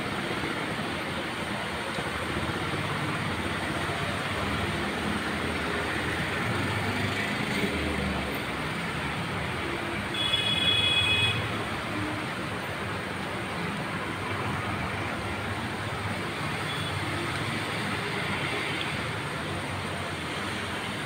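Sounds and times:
passing traffic rumble: 0.0 - 10.1
rain falling on street: 0.0 - 21.0
vehicle horn beep: 10.2 - 11.5.

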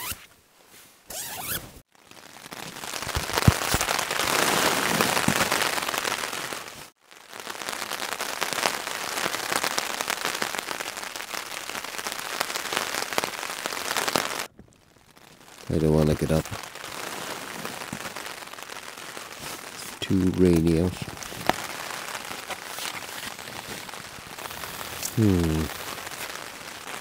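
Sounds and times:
tent door zip: 0.0 - 0.3, 1.1 - 1.8
heavy rain on tent fabric: 1.1 - 27.0.

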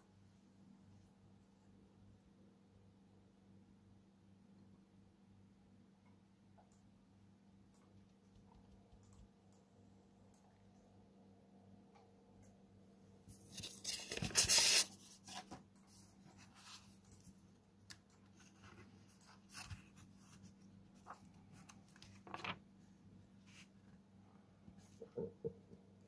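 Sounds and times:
paper pages rustling: 13.4 - 17.3, 18.2 - 22.6.

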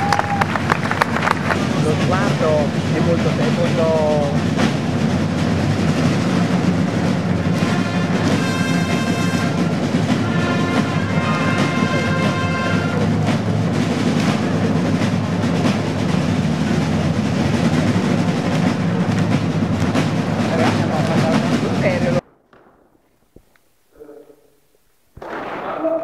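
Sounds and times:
side drums rolling: 0.0 - 23.6.

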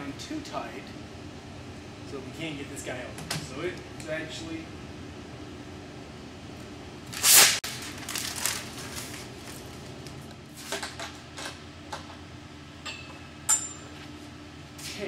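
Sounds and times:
hand handling rustle: 7.7 - 10.8.

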